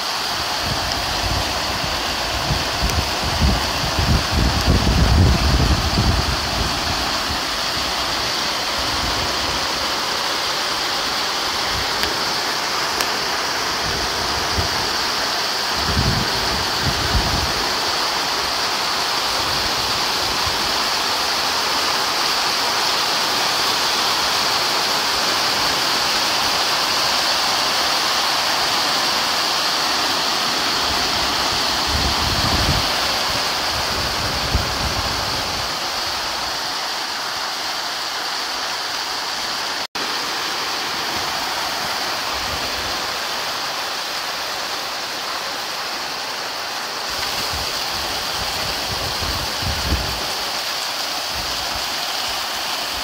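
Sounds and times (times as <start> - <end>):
heavy rain: 0.0 - 53.0
wind buffeting microphone: 0.6 - 9.6, 15.7 - 17.7, 30.8 - 36.5, 47.1 - 50.4.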